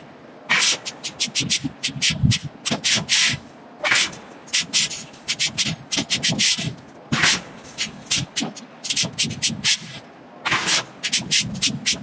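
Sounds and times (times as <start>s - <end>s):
steel bar scraping hot iron: 10.5s - 12.0s.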